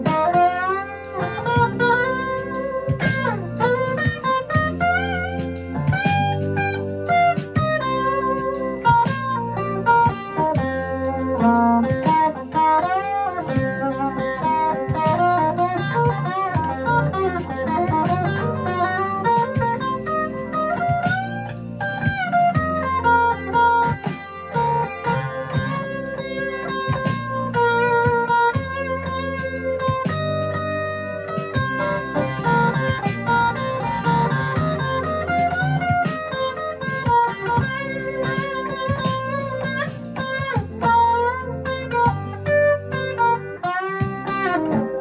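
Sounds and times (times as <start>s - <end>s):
electric guitar lead lines: 0.0s - 45.0s.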